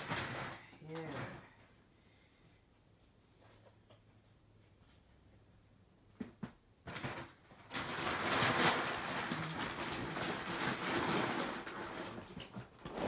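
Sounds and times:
packaging rustling and scraping: 0:00.0 - 0:01.2, 0:06.9 - 0:13.0.

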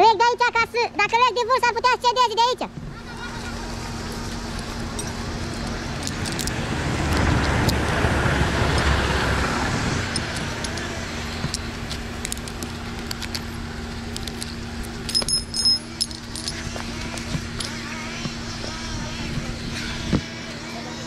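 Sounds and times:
engine humming: 0:00.0 - 0:21.0
metallic jingle: 0:04.6 - 0:06.5, 0:14.2 - 0:17.9.

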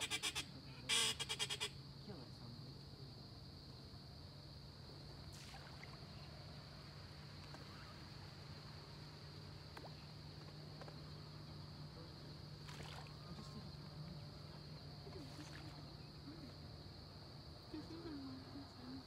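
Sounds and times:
soft short calls: 0:00.0 - 0:01.8
high-pitched insect chorus: 0:00.0 - 0:19.0.

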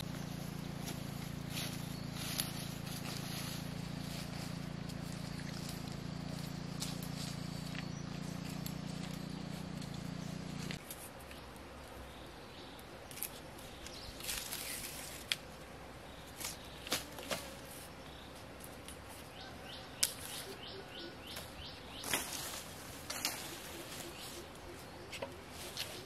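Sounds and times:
bamboo strips rustling: 0:00.0 - 0:11.9, 0:13.1 - 0:26.0
bamboo cracking and snapping: 0:13.1 - 0:15.5, 0:20.0 - 0:20.4.

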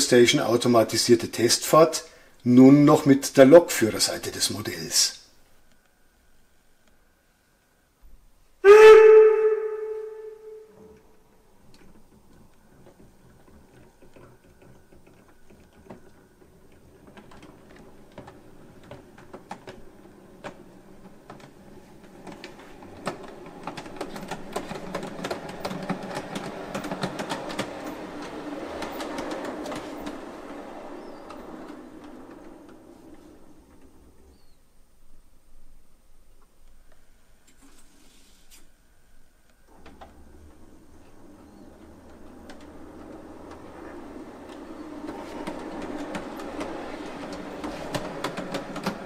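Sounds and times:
model train wheels clicking: 0:11.0 - 0:34.5, 0:39.2 - 0:49.0.

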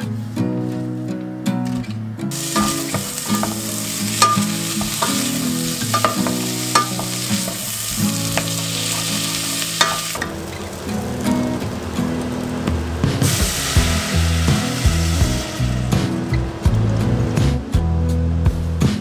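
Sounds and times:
onions sizzling in a saucepan: 0:02.3 - 0:16.4
spatula scraping and knocking pot: 0:02.5 - 0:07.7.

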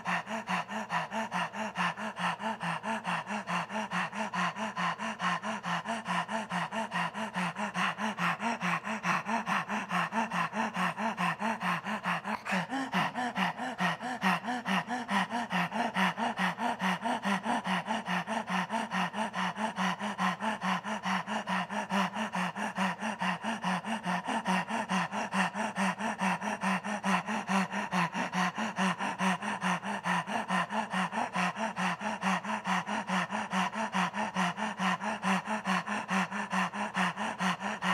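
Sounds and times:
man panting rapidly: 0:00.0 - 0:37.9.

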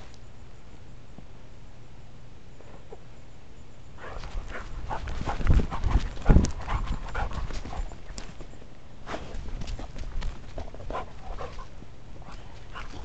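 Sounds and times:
dog footfalls: 0:04.1 - 0:08.5, 0:09.1 - 0:11.8.

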